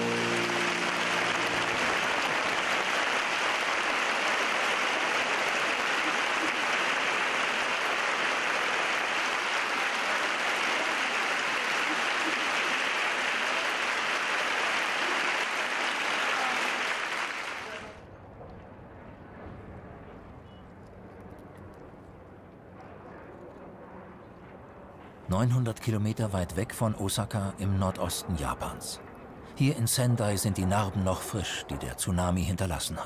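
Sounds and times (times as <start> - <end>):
music: 0.0 - 2.7
large crowd applauding: 0.0 - 18.0.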